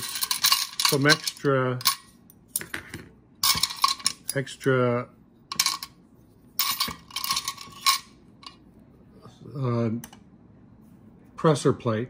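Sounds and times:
small metal parts clinking: 0.0s - 2.7s, 3.4s - 4.4s, 5.5s - 6.0s, 6.6s - 8.6s.

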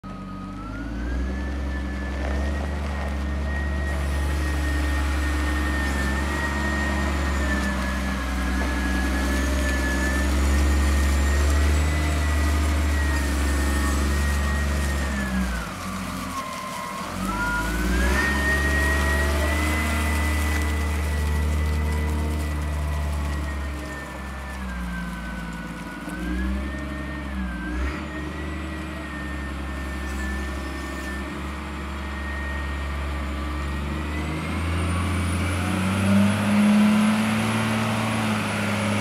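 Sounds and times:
diesel engine rumbling: 0.0s - 39.0s
high engine whine: 0.0s - 39.0s.

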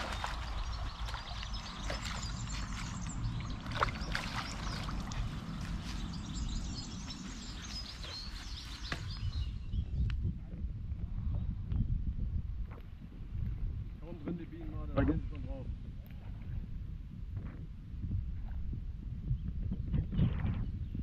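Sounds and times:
fish splashing in water: 0.0s - 6.3s
wind on microphone: 0.0s - 21.0s.

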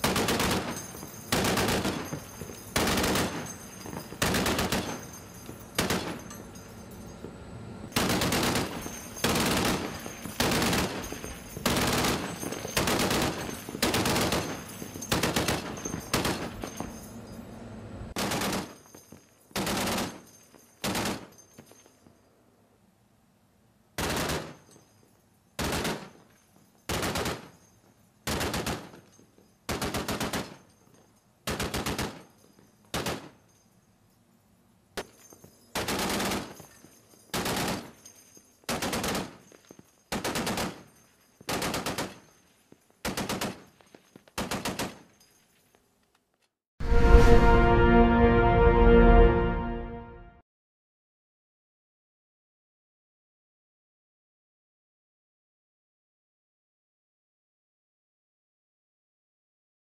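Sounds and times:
machine guns firing bursts: 0.0s - 6.3s, 8.0s - 16.8s, 18.2s - 18.8s, 19.6s - 21.3s, 24.0s - 24.6s, 25.6s - 26.2s, 26.9s - 27.6s, 28.3s - 29.0s, 29.7s - 30.6s, 31.5s - 32.3s, 32.9s - 33.4s, 35.8s - 36.6s, 37.3s - 38.0s, 38.7s - 39.5s, 40.1s - 42.3s, 43.0s - 43.7s, 44.4s - 45.0s.

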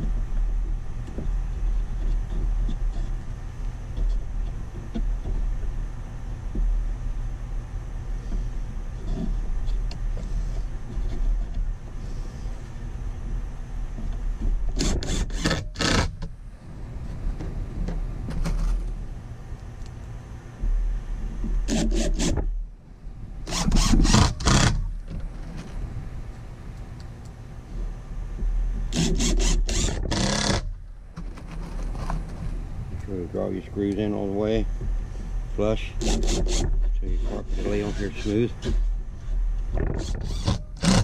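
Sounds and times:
cordless drill driving screws: 14.8s - 16.1s, 23.5s - 24.8s, 28.9s - 30.7s, 40.0s - 41.0s.

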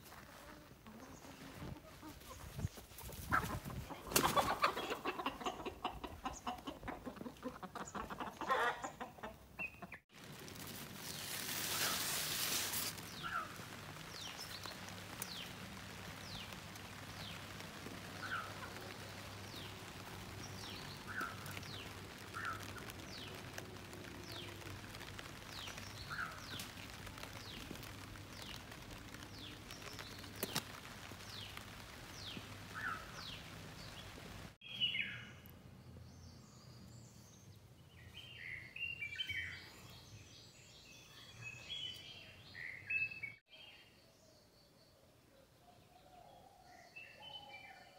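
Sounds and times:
birds chirping: 12.9s - 45.0s.

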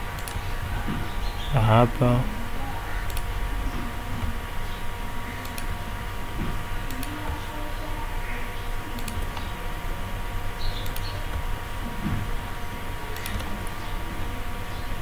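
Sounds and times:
electrical hum: 0.0s - 15.0s
low background rumble: 0.0s - 15.0s
computer mouse clicks: 0.2s - 0.4s, 3.1s - 3.3s, 5.4s - 5.7s, 9.0s - 9.5s, 10.8s - 11.5s, 13.2s - 13.8s.

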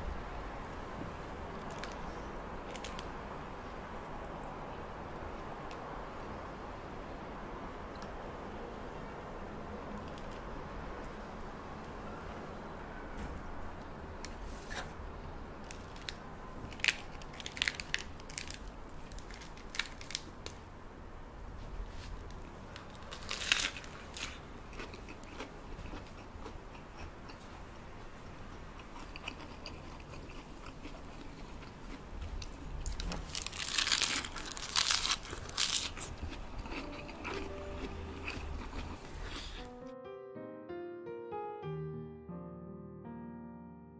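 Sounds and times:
lettuce leaves crunching: 15.6s - 20.6s, 22.8s - 26.0s, 32.5s - 39.7s.

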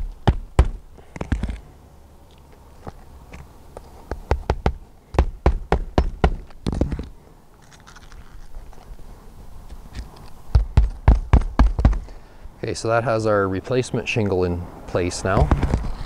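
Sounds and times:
hammer blows on roofing nails: 0.0s - 1.5s, 4.1s - 7.1s, 10.5s - 12.2s.

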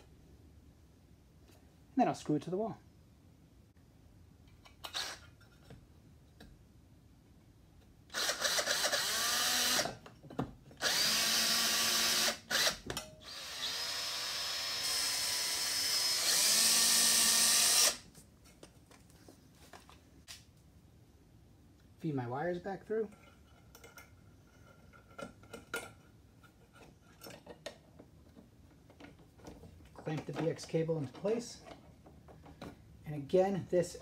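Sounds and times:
cordless drill driving screws: 4.8s - 5.3s, 8.1s - 10.0s, 10.8s - 18.0s.

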